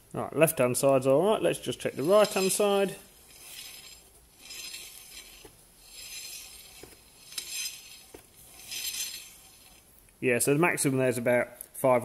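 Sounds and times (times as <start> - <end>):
soft swishing of wheel turning: 1.6 - 10.0.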